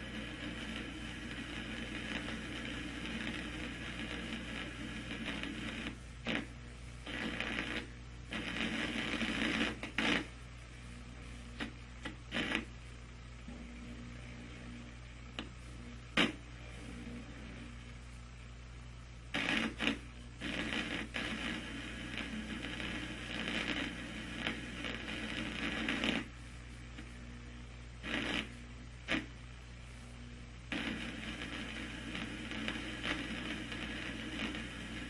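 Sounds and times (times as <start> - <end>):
crackle and clicks: 0.0 - 10.4, 11.6 - 12.8, 15.2 - 16.5, 19.3 - 27.2, 28.0 - 29.4, 30.7 - 35.0
low mains hum: 0.0 - 35.0
tape hiss: 0.0 - 35.0.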